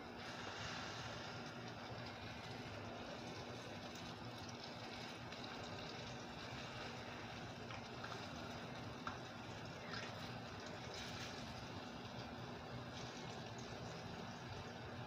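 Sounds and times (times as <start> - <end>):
eggplant sizzling in oil: 0.0 - 15.0.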